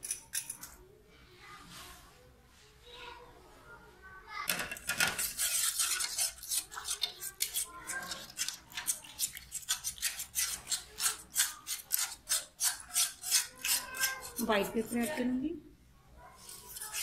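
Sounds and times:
whisk scraping and clinking in pan: 4.5s - 15.2s, 16.4s - 17.0s.

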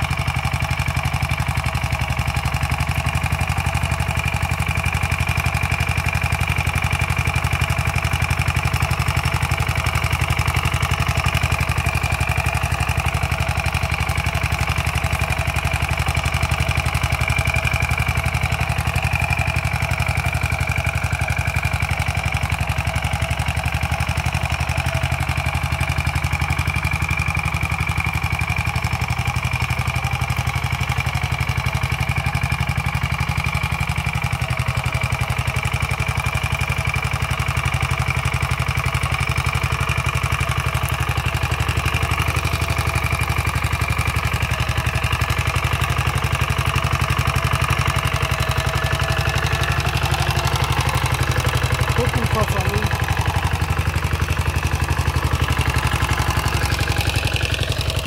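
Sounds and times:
rotary tiller engine running: 0.0s - 58.0s.

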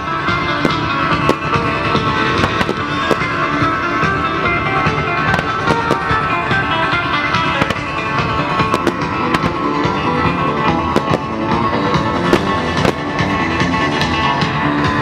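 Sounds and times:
guitar-led music: 0.0s - 15.0s
firework shells bursting: 0.6s - 3.6s, 5.2s - 6.3s, 7.4s - 9.9s, 10.8s - 11.6s, 12.2s - 13.2s.

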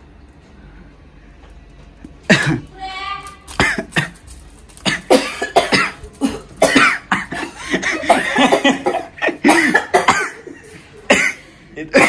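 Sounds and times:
woman coughing: 2.3s - 2.8s, 3.5s - 4.2s, 4.8s - 12.0s.

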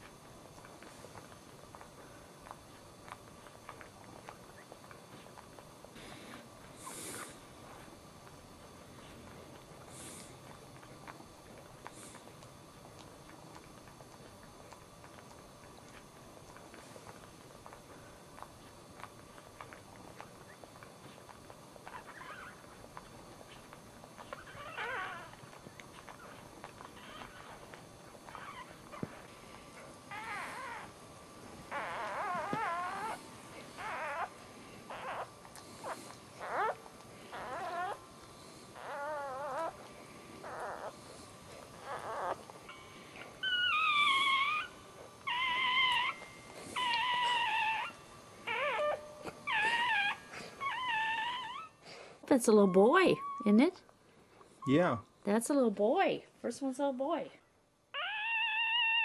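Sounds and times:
dog licking with wet clicks: 0.0s - 5.9s, 7.6s - 47.5s
puppy crying with high squeals: 21.9s - 22.7s, 24.2s - 25.5s, 30.1s - 30.9s, 31.7s - 33.2s, 33.8s - 34.3s, 34.9s - 38.0s, 38.8s - 39.8s, 40.4s - 40.9s, 41.8s - 51.8s, 52.7s - 53.6s, 57.9s - 59.0s
puppy crying in high squeals: 43.4s - 46.2s, 46.8s - 51.8s, 58.0s - 59.0s.

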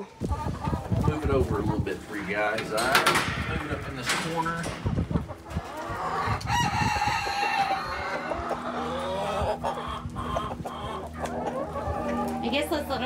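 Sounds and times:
chickens clucking: 0.0s - 13.0s
rooster crowing: 6.0s - 8.4s.

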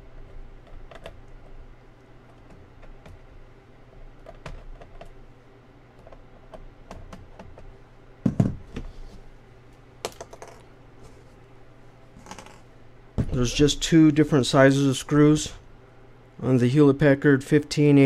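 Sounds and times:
knock on laptop: 8.2s - 8.6s.

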